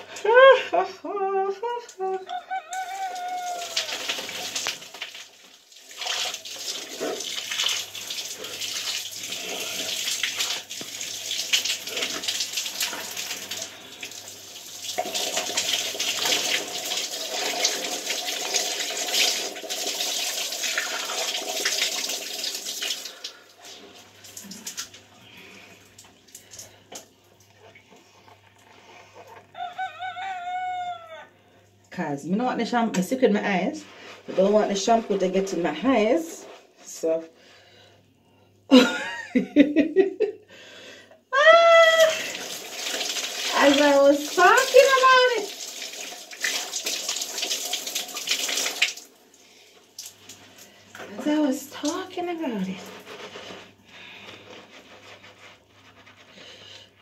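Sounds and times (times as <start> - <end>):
shower water running and splashing: 2.7 - 27.1, 41.6 - 56.3.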